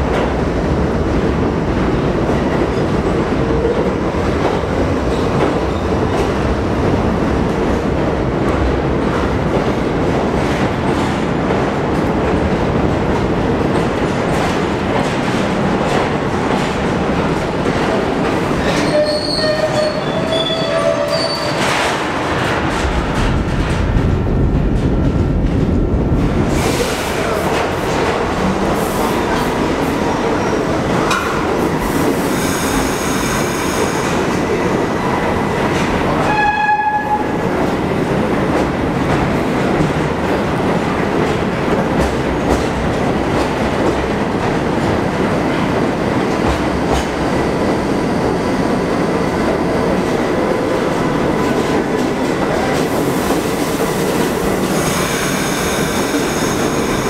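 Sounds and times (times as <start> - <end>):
subway train wheels rumbling on rails: 0.0 - 57.0
train horn blast: 36.2 - 37.4.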